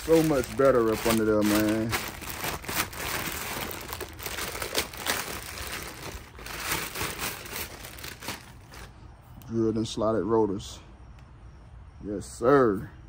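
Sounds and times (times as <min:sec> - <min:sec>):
plastic wrap crinkling: 0:00.0 - 0:08.9.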